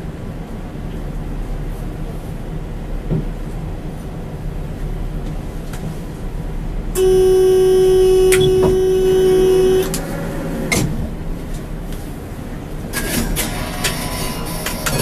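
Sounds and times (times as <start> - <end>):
low steady hum: 0.0 - 13.0
loud horn-like tone: 7.0 - 10.2.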